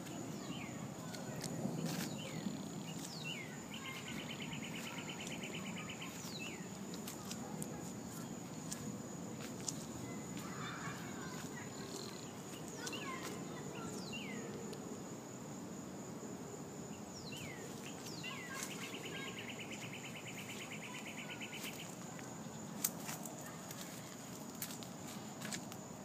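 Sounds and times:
birds whistling falling calls: 0.3 - 7.4, 17.2 - 22.0
rapid bird trill: 2.0 - 7.4, 17.2 - 22.1.

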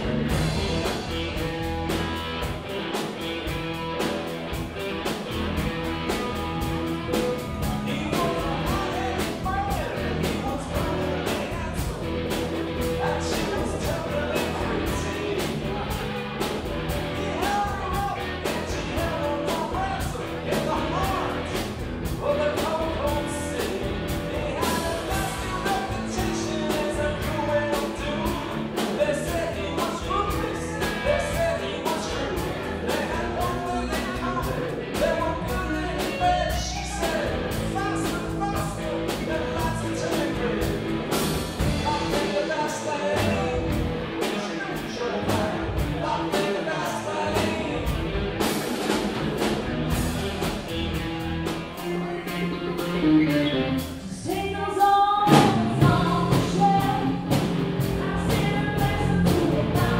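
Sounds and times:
live rock band: 0.0 - 59.9
woman singing lead: 54.0 - 59.9.

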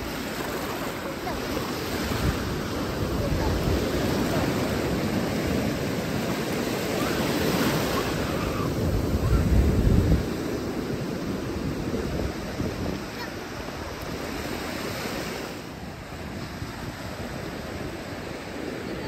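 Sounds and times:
wind buffeting microphone: 0.0 - 14.8
ocean surf washing onto beach: 0.0 - 19.0.

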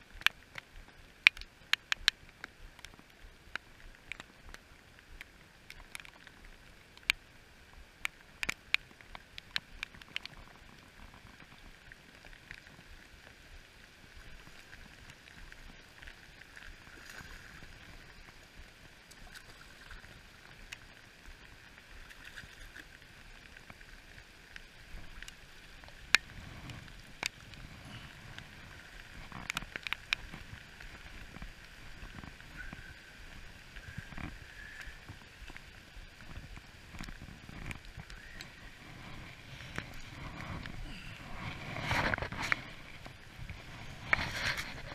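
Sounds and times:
rain falling on a river: 0.0 - 44.9
raindrops ticking on camera: 0.0 - 44.9.

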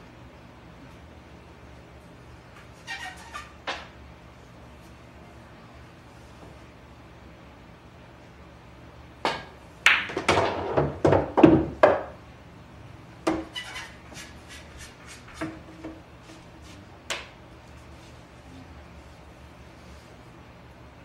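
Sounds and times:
pool balls clacking: 9.2 - 12.2.

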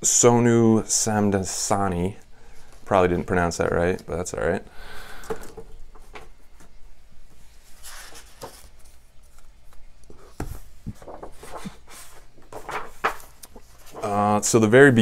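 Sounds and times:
book pages turning: 7.6 - 14.2.

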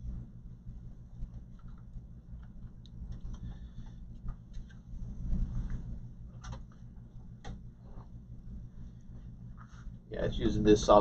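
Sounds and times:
steady low hum: 0.0 - 11.0
cables and connectors clicking: 1.2 - 7.7.

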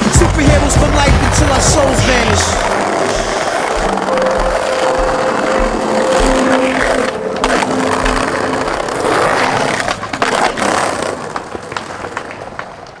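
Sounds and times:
music with low beat: 0.0 - 9.0
skateboard wheels rolling on paving: 0.0 - 13.0
skateboard clacks: 6.8 - 13.0.

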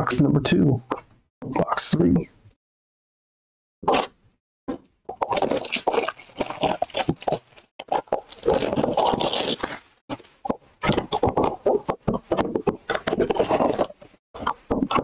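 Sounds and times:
plastic wrap crinkling and tearing: 5.2 - 10.0
hands scraping cardboard: 10.8 - 15.0.

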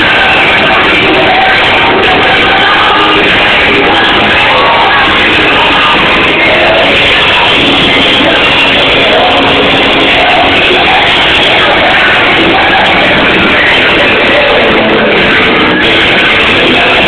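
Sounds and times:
loud distorted party music: 0.0 - 17.0.

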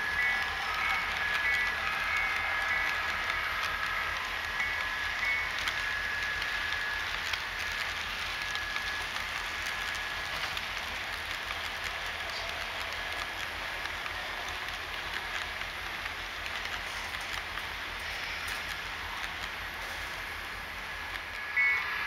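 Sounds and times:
model train wheels rolling on rail: 0.0 - 22.0
small irregular clicks: 0.0 - 22.0
faint high steady tone: 21.3 - 22.0.

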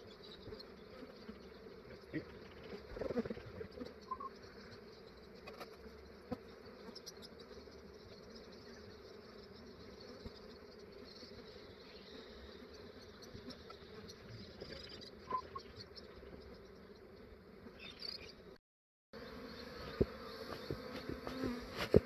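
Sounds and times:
bees buzzing: 19.2 - 22.0.

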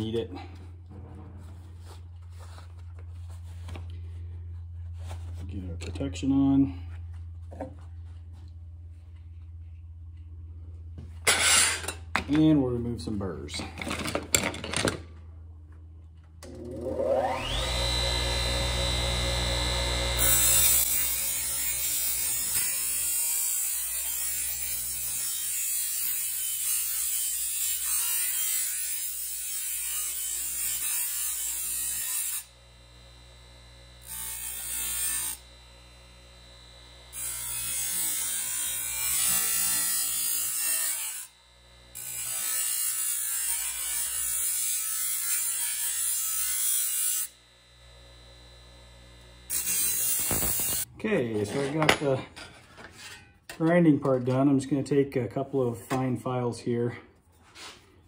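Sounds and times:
grinder motor hum: 16.4 - 23.0, 29.2 - 51.0
steel hissing on grinding wheel: 49.5 - 50.9.

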